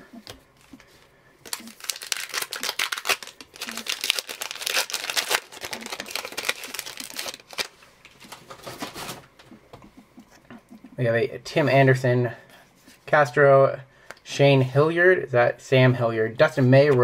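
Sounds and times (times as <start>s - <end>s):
plastic wrapper crinkling and tearing: 1.4s - 9.2s
torn wrapper rustling: 1.4s - 9.3s.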